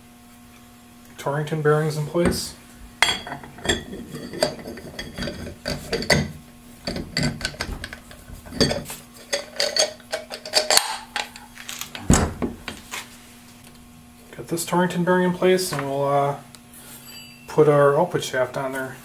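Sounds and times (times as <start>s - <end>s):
faint steady hum: 0.0s - 19.0s
steel parts clinking and rattling: 3.0s - 11.9s.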